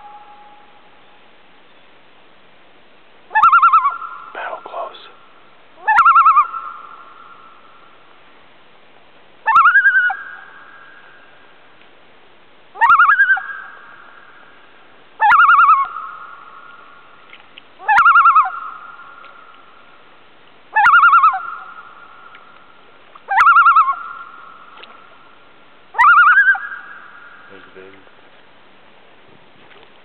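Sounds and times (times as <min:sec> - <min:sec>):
loon calling: 0:03.3 - 0:07.8, 0:09.4 - 0:11.3, 0:12.7 - 0:14.6, 0:15.2 - 0:17.0, 0:17.8 - 0:19.7, 0:20.7 - 0:25.2, 0:25.9 - 0:27.8.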